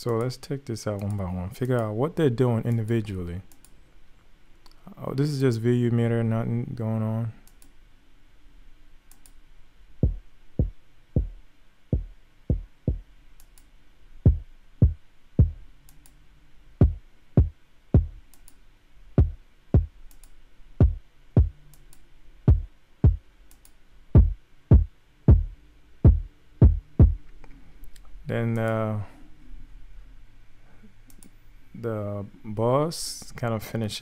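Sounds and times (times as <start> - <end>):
punchy hip-hop kick drum hits: 10.0 - 11.4, 12.0 - 13.0, 14.3 - 15.6, 16.8 - 18.2, 19.2 - 19.9, 20.8 - 21.6, 22.5 - 23.2, 24.2 - 27.2.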